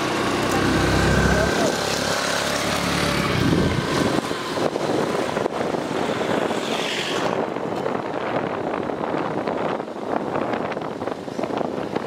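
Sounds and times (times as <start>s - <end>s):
motor scooter engine: 0.0s - 6.9s
wind rushing over microphone: 2.8s - 12.0s.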